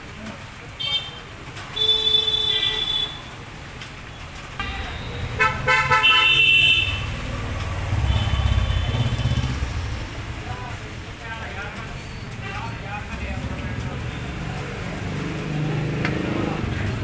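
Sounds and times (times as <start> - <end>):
vehicle horn honks: 4.6 - 7.1.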